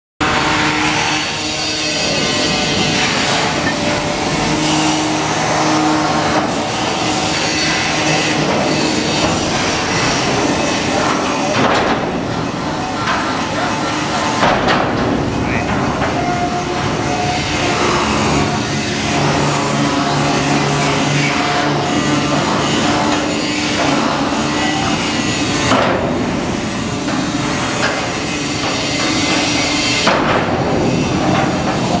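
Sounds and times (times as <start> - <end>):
loud industrial noise: 0.2 - 32.0
steady background noise: 0.2 - 32.0
metal clanks: 6.3 - 21.2.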